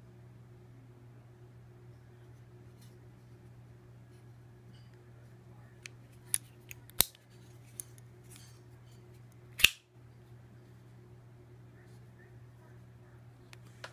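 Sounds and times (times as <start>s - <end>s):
folding knife clicking and snapping: 6.3s - 8.0s, 9.6s - 9.8s.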